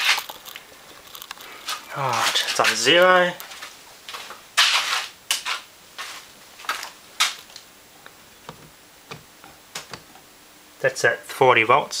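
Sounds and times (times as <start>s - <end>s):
rustling scrape: 0.0s - 2.9s, 3.5s - 6.3s.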